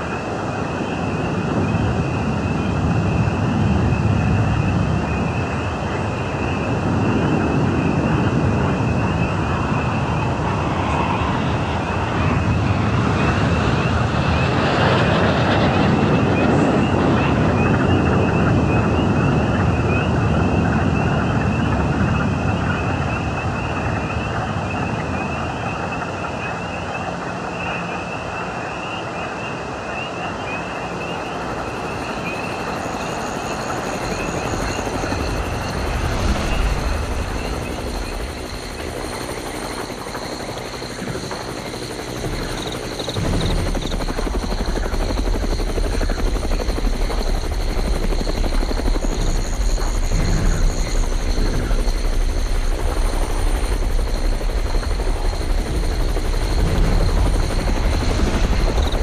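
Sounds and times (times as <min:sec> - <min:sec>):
helicopter turbine and rotor: 0:00.0 - 0:59.0
steady rushing noise: 0:31.2 - 0:59.0.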